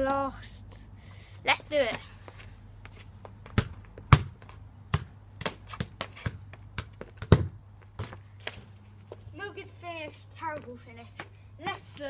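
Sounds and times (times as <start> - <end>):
football thudding on paving: 3.2 - 8.7.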